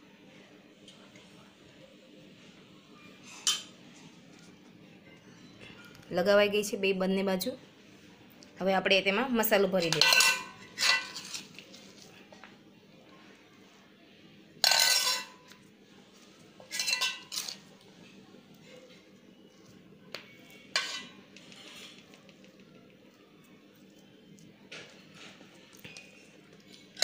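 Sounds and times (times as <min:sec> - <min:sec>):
metal spoon scraping steel bowl: 0:09.8 - 0:11.6, 0:14.6 - 0:15.4, 0:16.7 - 0:17.6, 0:20.7 - 0:22.0.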